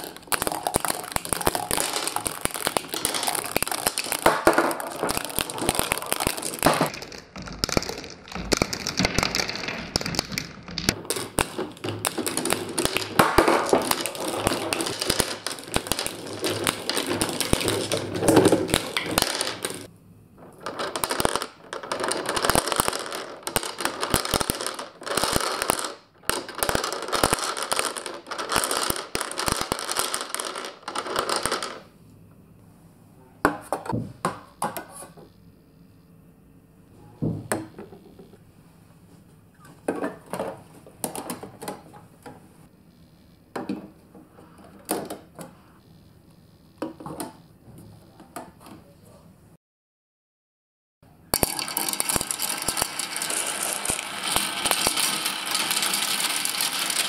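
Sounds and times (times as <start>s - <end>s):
marbles clattering down plastic slide: 0.0s - 19.9s, 20.5s - 31.9s, 51.3s - 57.0s
scattered marble clicks and knocks: 0.0s - 19.9s, 20.6s - 31.9s, 51.4s - 57.0s.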